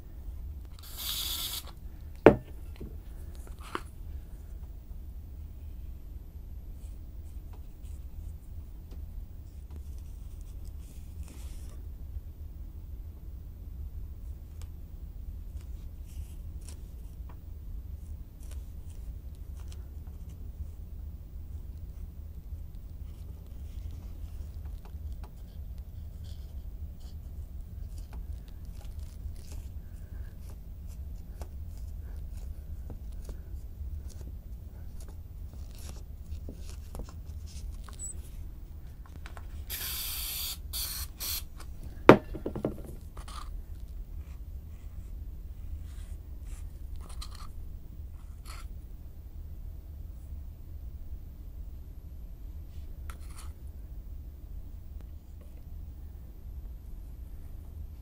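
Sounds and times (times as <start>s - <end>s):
steady low hum: 0.0s - 58.0s
aerosol can spraying: 0.8s - 1.7s, 39.7s - 41.4s.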